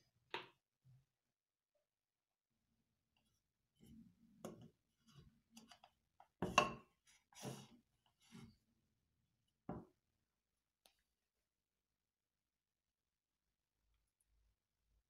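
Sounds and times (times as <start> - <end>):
wood-on-wood knocks and scrapes: 4.4 - 8.5.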